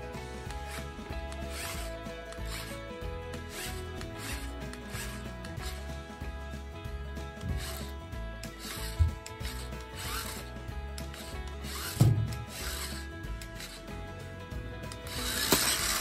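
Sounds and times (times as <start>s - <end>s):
toy motor and gears rasping: 0.0s - 6.4s, 7.2s - 14.1s, 14.8s - 16.0s
loud knocks: 12.0s - 12.5s.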